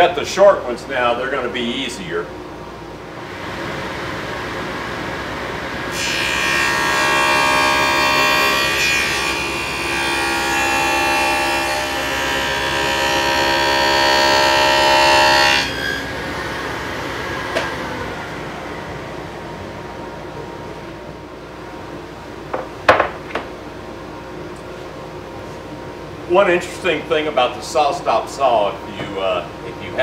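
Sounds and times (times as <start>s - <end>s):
table saw cutting wood: 5.8s - 18.4s.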